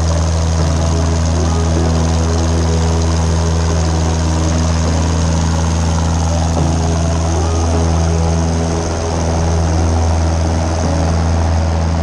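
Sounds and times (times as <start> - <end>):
propeller airplane engine at full power: 0.0 - 12.0.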